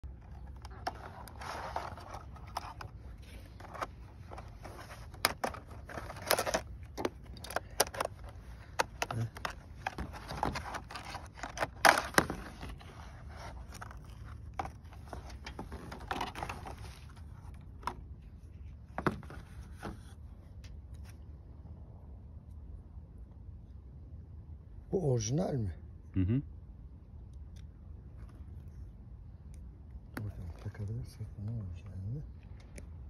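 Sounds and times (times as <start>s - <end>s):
plastic rustling and crinkling: 0.0s - 20.1s.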